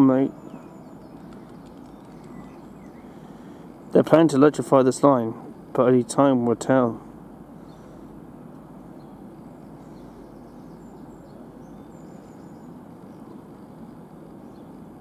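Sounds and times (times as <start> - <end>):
low outdoor rumble: 0.0 - 15.0
faint bird chirps: 0.2 - 3.6, 9.0 - 14.8.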